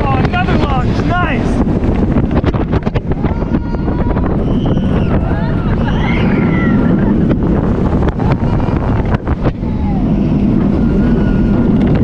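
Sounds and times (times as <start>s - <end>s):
roller coaster wheel rumble: 0.0s - 12.0s
wind buffeting microphone: 0.0s - 12.0s
faint high gliding whines: 3.8s - 12.0s.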